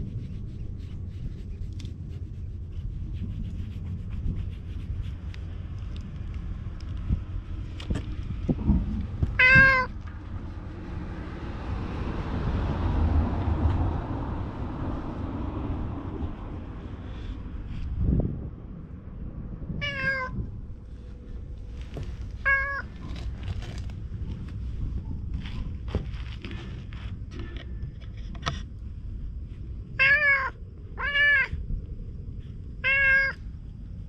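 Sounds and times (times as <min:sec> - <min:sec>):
cat meowing: 0:09.4 - 0:10.0, 0:19.8 - 0:20.4, 0:22.4 - 0:22.9, 0:30.0 - 0:31.6, 0:32.8 - 0:33.4
rustling and handling noises: 0:20.9 - 0:28.8.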